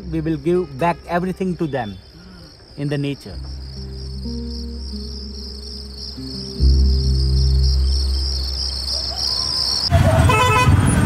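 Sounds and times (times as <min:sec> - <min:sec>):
crickets chirping: 0:00.0 - 0:10.6
street traffic noise: 0:00.0 - 0:11.0
low musical drone: 0:03.4 - 0:09.0.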